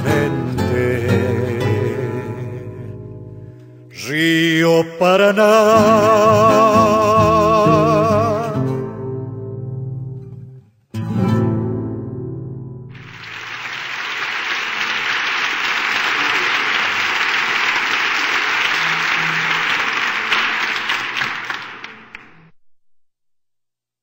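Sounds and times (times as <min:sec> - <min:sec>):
audience applause: 0:13.0 - 0:22.4.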